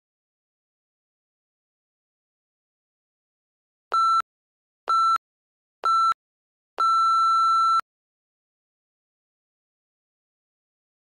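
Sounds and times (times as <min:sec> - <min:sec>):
timer short beeps: 0:05.9 - 0:06.2.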